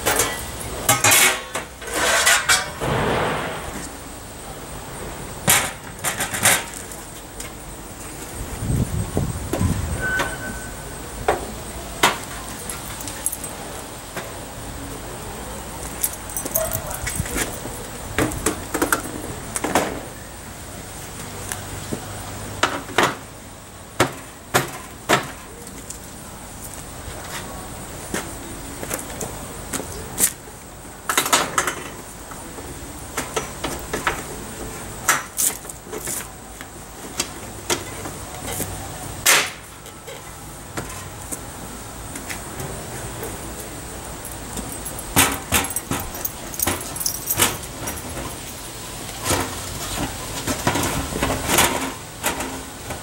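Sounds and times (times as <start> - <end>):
metal clanks and knocks: 0.0 - 4.0, 5.4 - 6.9, 44.6 - 48.4.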